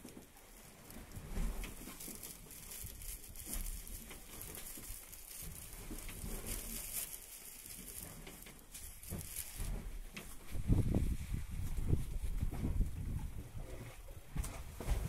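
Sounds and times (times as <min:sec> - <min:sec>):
steady background hiss: 0:00.0 - 0:10.8.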